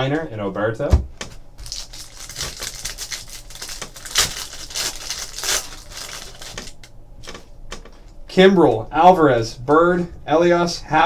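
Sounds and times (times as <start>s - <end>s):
foil wrapper crinkling and tearing: 1.6s - 6.9s.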